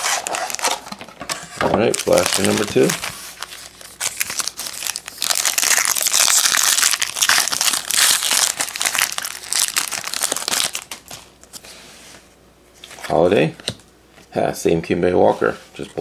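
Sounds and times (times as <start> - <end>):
foil wrappers crinkling: 0.0 - 0.9, 1.9 - 11.3.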